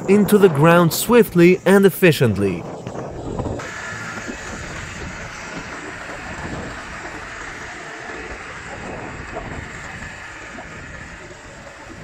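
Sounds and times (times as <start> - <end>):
hydraulic power unit engine running: 3.4 - 12.0.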